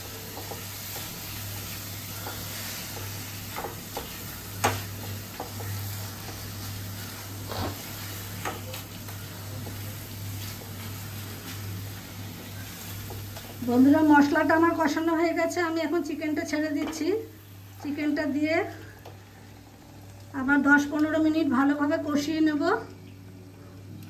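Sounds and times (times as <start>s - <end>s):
spatula tapping a pan: 0.0s - 1.4s, 2.0s - 6.6s, 8.4s - 9.9s
paste sizzling in a pan: 0.0s - 14.9s.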